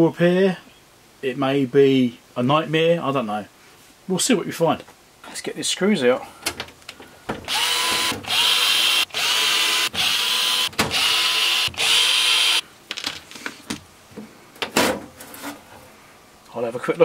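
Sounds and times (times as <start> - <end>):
electric screwdriver whirring: 7.5 - 12.6.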